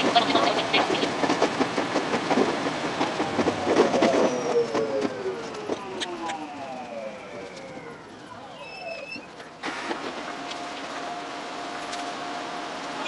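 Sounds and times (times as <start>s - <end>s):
train wheels clicking over rails: 0.0s - 13.0s
traction motor whine: 3.2s - 13.0s.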